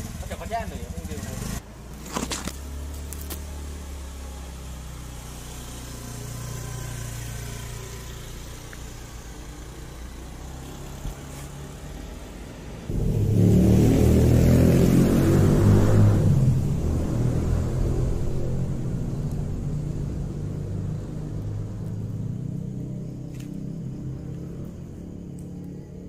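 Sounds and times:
motor scooter engine humming: 2.5 - 26.0.

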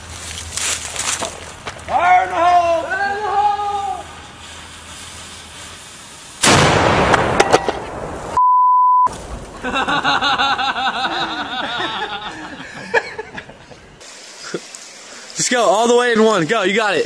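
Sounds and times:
fuse hissing: 3.5 - 6.5, 14.0 - 17.0
cannon blast with echo: 6.4 - 8.4
censor bleep: 8.4 - 9.1.

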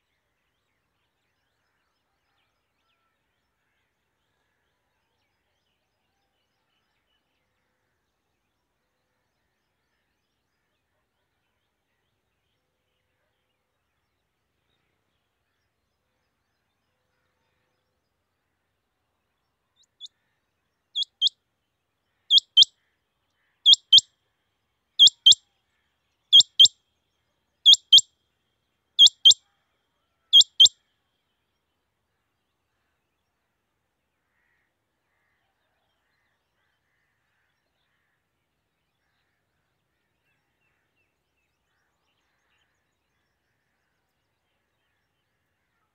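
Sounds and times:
quail calling sharp double notes: 22.3 - 22.7, 23.7 - 24.0, 25.0 - 25.4, 26.4 - 26.7, 27.7 - 28.0, 29.0 - 29.4, 30.4 - 30.7.

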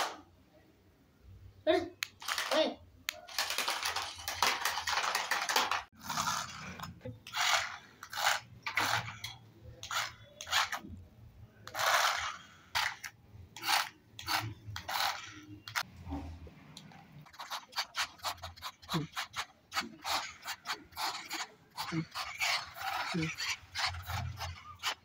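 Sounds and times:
toy car wheels scraping floor: 3.3 - 10.8, 11.6 - 15.9, 17.4 - 25.0.

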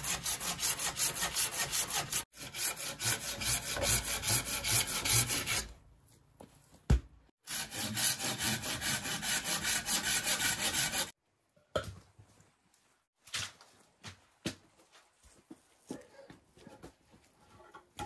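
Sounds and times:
hand saw cutting wood: 0.0 - 5.7, 7.4 - 11.2.

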